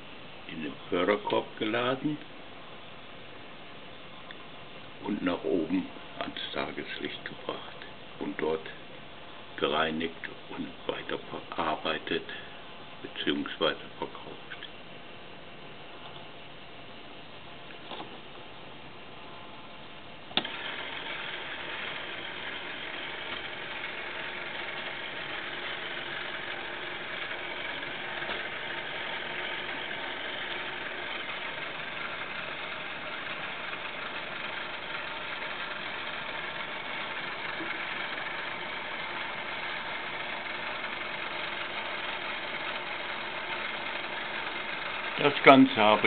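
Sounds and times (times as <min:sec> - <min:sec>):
small electric motor whirring: 0:20.4 - 0:46.0.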